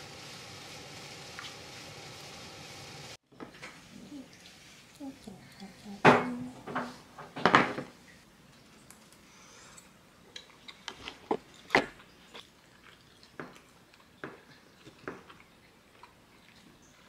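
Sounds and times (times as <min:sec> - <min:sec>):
quiet chewing: 0:08.5 - 0:17.0.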